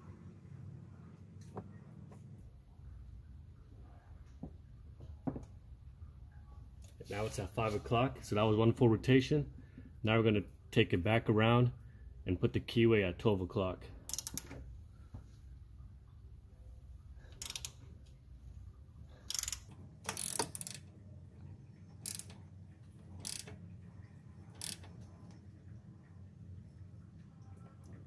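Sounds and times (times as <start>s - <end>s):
low hum: 0.0s - 7.1s
hand ratchet clicking: 14.1s - 14.6s, 17.3s - 17.8s, 19.2s - 20.8s, 22.0s - 22.4s, 23.2s - 23.6s, 24.6s - 24.9s.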